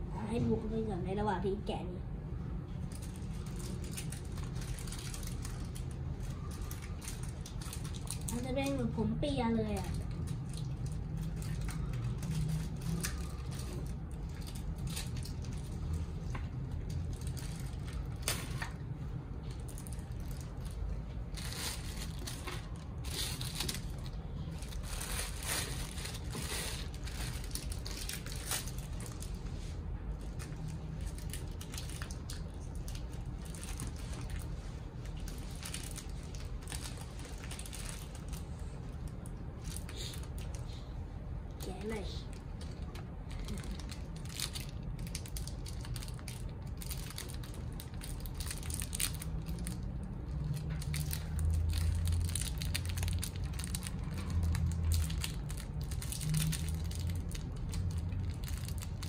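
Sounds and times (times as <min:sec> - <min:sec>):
low room hum: 0:00.0 - 0:59.0
plastic packaging crinkling: 0:02.8 - 0:40.8, 0:41.6 - 0:59.0.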